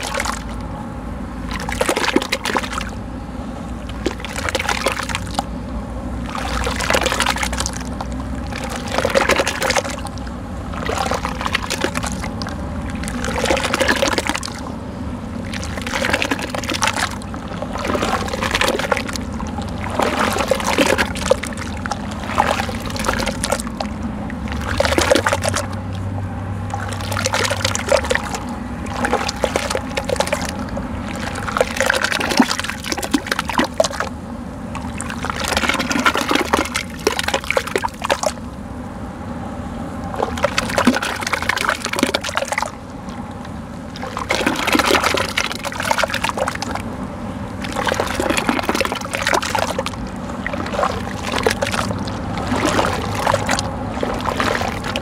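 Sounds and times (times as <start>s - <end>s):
hands splashing wet sand in water: 1.5s - 2.9s, 6.2s - 14.7s, 15.5s - 23.9s, 24.5s - 25.8s, 26.7s - 34.1s, 34.9s - 38.4s, 44.0s - 46.8s, 47.6s - 55.0s.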